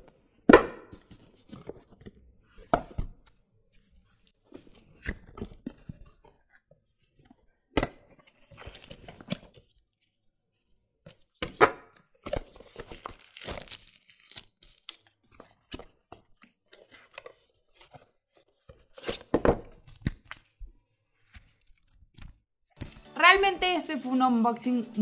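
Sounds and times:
cardboard packaging rustling: 8.1s - 9.9s, 12.1s - 23.1s.

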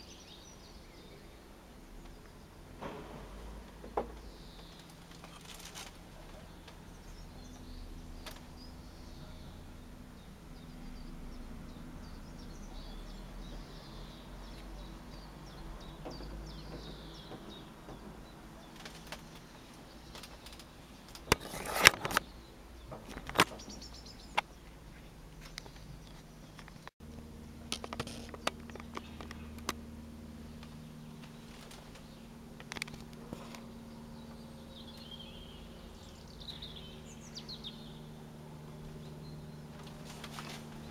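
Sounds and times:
steady low hum: 0.0s - 40.9s
faint bird chirps: 3.8s - 21.6s.

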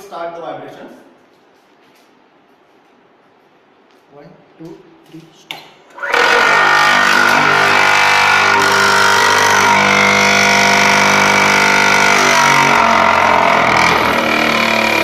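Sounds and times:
vibrating table humming: 5.9s - 15.0s.

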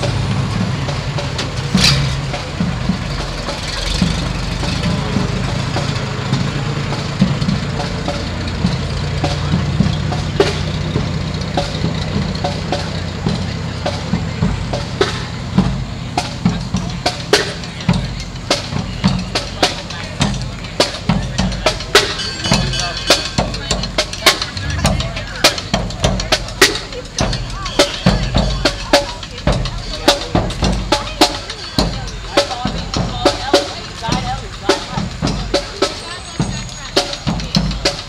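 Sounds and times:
fire engine motor humming: 0.0s - 38.0s
marching band drums: 0.0s - 38.0s
sharp clack: 1.4s - 2.6s.

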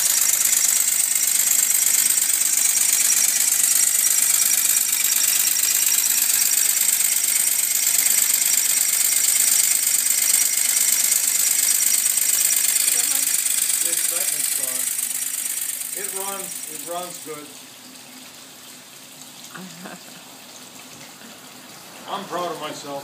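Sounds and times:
fast even ticking: 0.0s - 17.4s
model engine hissing: 0.0s - 17.5s.

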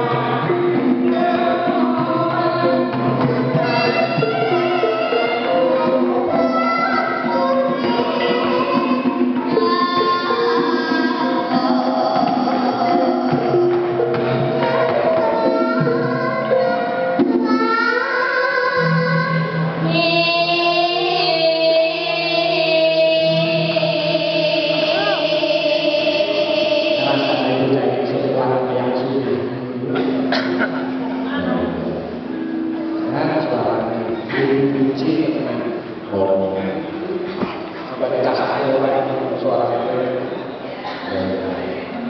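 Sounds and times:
woman singing: 0.0s - 27.8s.

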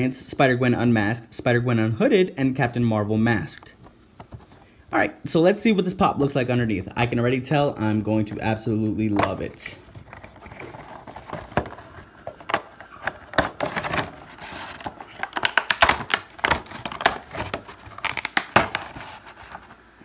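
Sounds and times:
plastic crinkling and clicking: 10.0s - 19.7s.

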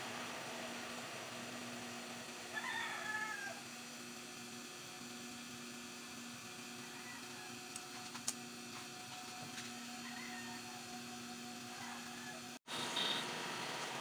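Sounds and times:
metal lathe humming: 3.6s - 12.6s.

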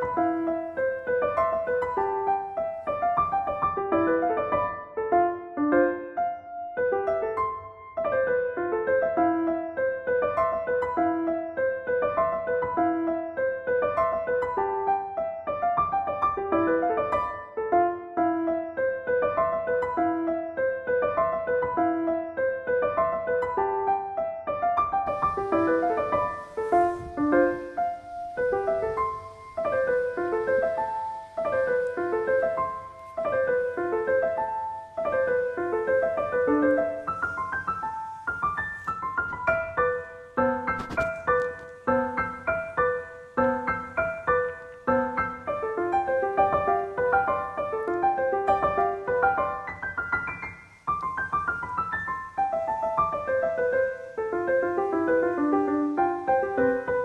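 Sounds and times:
piano melody: 0.0s - 57.0s.

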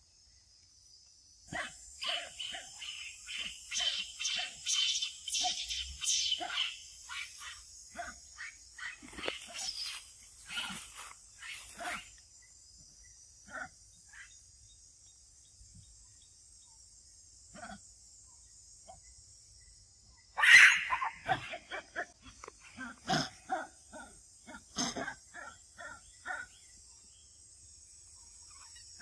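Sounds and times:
monkeys calling: 1.5s - 12.2s, 20.4s - 26.6s.

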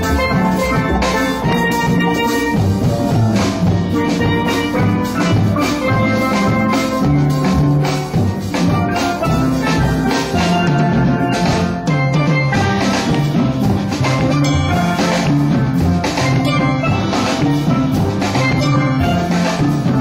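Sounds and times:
drums keeping beat: 0.0s - 20.0s
low bass pan notes: 0.0s - 20.0s
steel pan notes: 0.0s - 20.0s.

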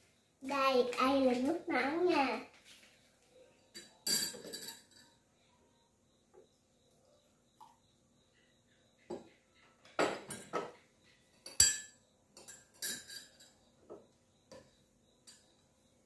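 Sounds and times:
spoon clinking against glass: 3.7s - 5.2s, 11.4s - 13.6s.

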